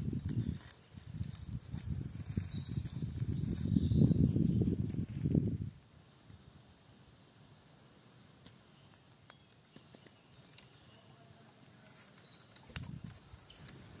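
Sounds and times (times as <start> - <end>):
twigs crackling in fire: 0.0 - 5.8, 8.4 - 14.0.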